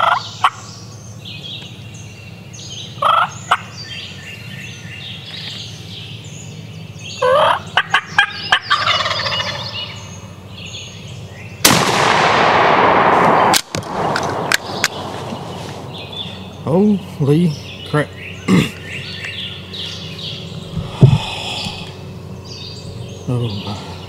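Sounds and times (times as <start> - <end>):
turkey gobbling: 0.0 - 0.6, 3.0 - 3.7, 7.2 - 10.1
small birds chirping: 0.0 - 11.7, 14.0 - 24.0
shotgun blast: 11.6 - 16.5
loud steady rushing noise: 12.0 - 18.1.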